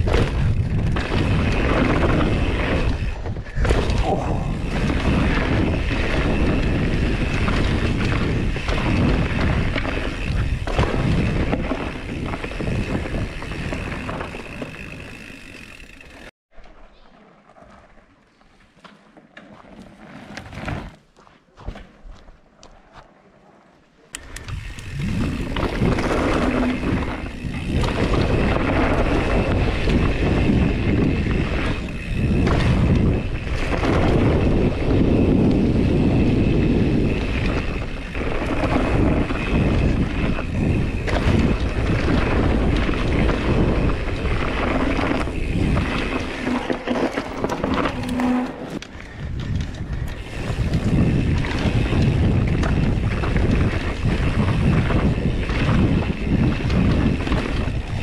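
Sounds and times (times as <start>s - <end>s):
wind over microphone: 0.0s - 15.9s, 24.2s - 58.0s
bike knocks and rattles: 0.0s - 16.3s, 24.3s - 58.0s
tyres rumbling on dirt: 0.0s - 16.3s, 24.5s - 58.0s.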